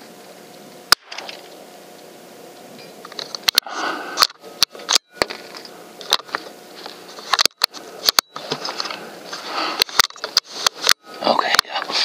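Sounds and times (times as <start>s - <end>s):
sharp clicks and knocks: 7.2s - 8.6s.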